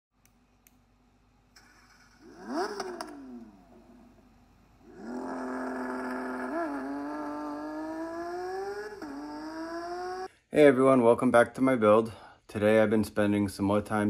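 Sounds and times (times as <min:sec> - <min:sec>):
car engine revving: 0:01.6 - 0:10.3
steady engine drone: 0:01.6 - 0:10.3.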